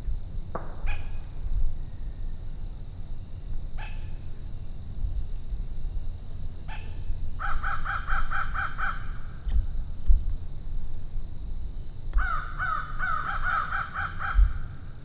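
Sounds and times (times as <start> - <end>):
bird calling: 0.8 - 2.2, 3.8 - 4.4, 6.7 - 9.4, 12.2 - 14.8.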